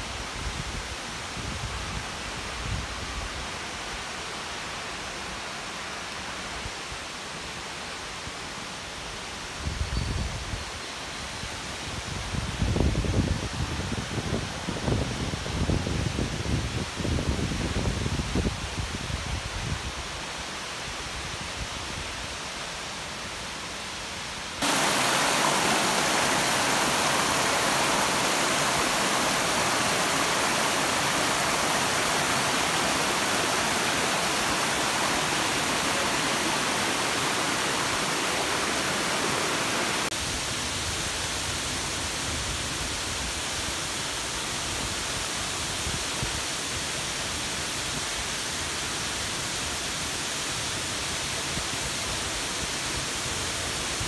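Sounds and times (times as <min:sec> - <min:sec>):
waterfall rushing: 0:24.5 - 0:54.0.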